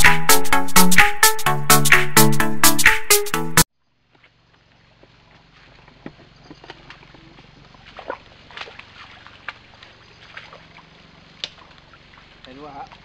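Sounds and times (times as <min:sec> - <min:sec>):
footsteps crackling through undergrowth: 0:04.0 - 0:13.0.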